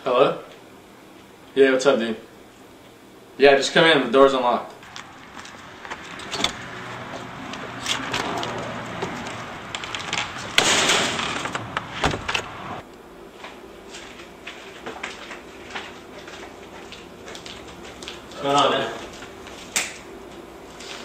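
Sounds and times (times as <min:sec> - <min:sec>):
door opening and shutting: 0:04.8 - 0:12.8.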